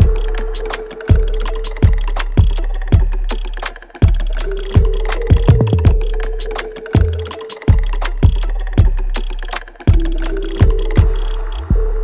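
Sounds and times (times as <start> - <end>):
kick drum: 0.0 - 0.4, 1.1 - 3.2, 4.0 - 6.1, 7.0 - 9.0, 9.9 - 12.0
music with steady beat: 0.0 - 12.0.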